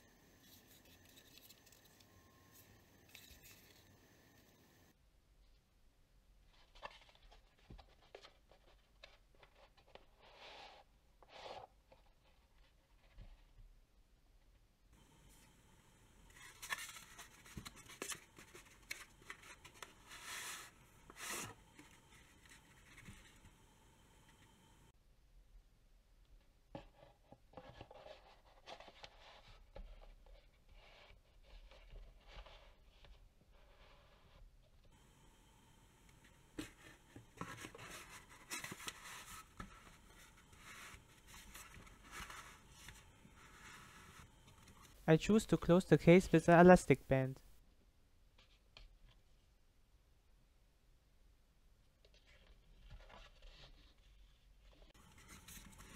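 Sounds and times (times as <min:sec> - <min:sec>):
cardboard scraping and rustling: 0:36.5 - 0:45.0, 0:54.9 - 0:55.9.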